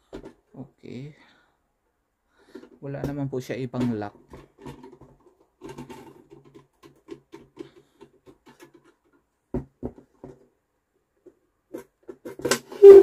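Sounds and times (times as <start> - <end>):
small clicks and scratches: 3.8 - 9.3.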